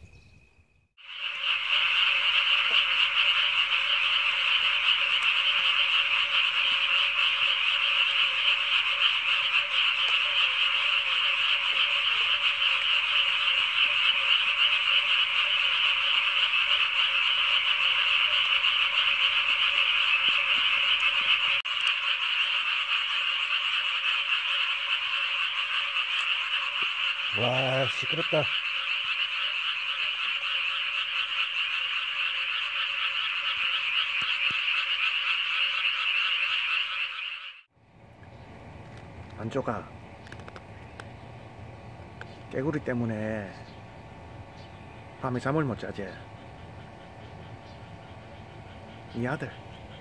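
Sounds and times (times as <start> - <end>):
chorus of frogs croaking: 1.0 - 50.0.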